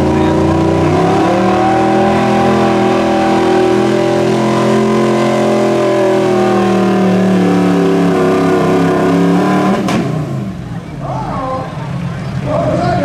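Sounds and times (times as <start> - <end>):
truck engine revving hard: 0.0 - 11.0.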